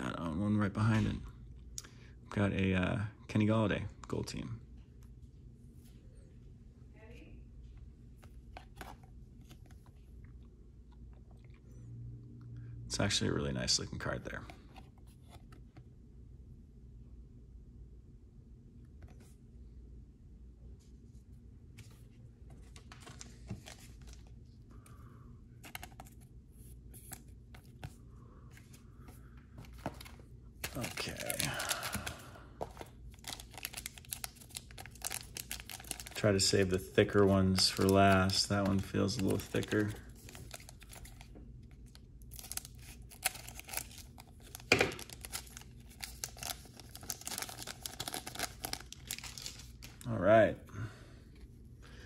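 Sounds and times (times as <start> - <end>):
foil card packs rustling: 22.5 - 24.3, 25.6 - 26.2, 28.6 - 50.1.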